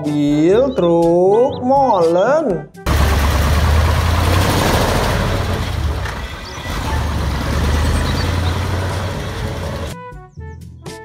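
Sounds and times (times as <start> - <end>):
truck engine rumbling: 2.9 - 10.0.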